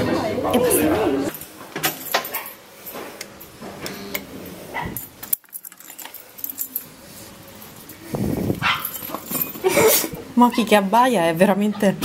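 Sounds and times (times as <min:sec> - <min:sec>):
keys jangling in a lock: 0:05.0 - 0:06.9.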